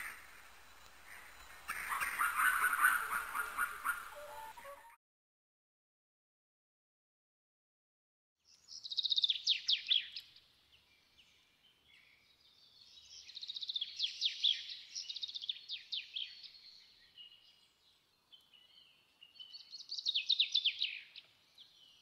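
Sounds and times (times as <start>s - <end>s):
small songbird singing: 8.4s - 22.0s.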